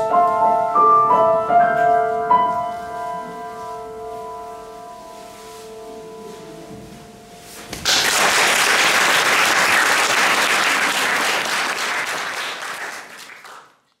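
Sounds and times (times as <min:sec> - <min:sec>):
piano notes: 0:00.0 - 0:07.9
audience applauding: 0:07.8 - 0:13.9.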